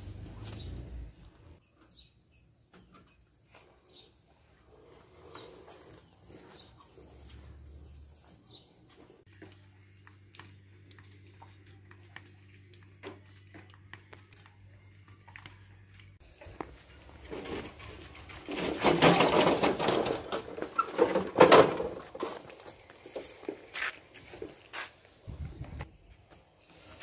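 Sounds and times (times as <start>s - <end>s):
metal wheelbarrow rattling on paving: 16.4s - 24.6s.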